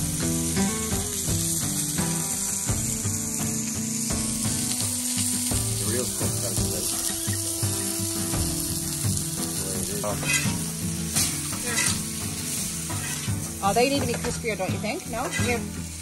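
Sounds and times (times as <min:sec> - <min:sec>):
fish and potatoes sizzling: 0:00.0 - 0:16.0.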